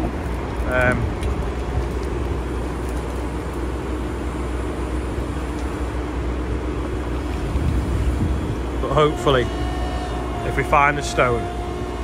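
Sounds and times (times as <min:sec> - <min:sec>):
mini digger engine rumbling: 0:00.0 - 0:12.0.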